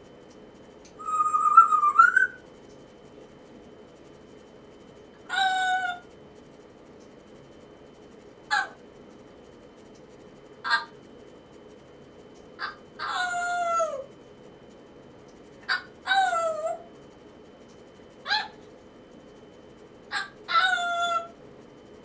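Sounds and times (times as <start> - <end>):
parrot calling: 1.0 - 2.4, 5.2 - 6.1, 8.5 - 8.8, 10.6 - 11.0, 12.6 - 14.1, 15.6 - 16.9, 18.2 - 18.6, 20.1 - 21.4.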